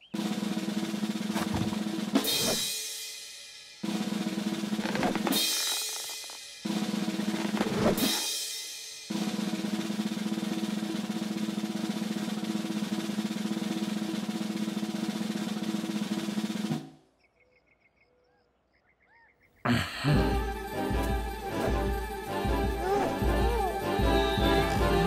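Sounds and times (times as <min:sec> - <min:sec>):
fast snare drum roll: 0:09.1 - 0:16.8.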